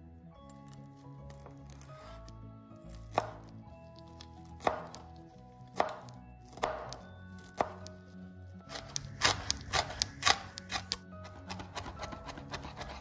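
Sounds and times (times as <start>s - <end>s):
knife chopping on wooden board: 3.1s - 5.1s, 5.7s - 8.0s, 8.7s - 13.0s.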